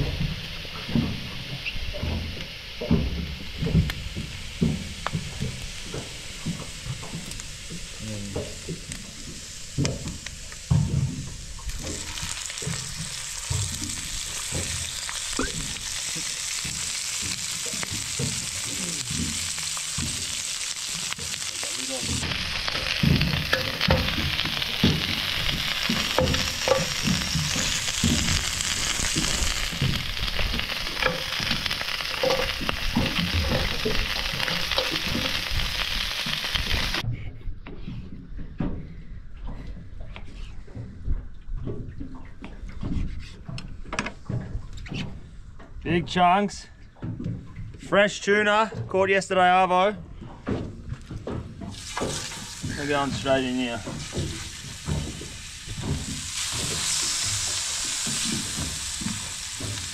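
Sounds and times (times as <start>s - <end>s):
seafood sizzling in a frying pan: 0.0s - 37.0s, 51.7s - 59.9s
low thuds: 22.0s - 37.2s.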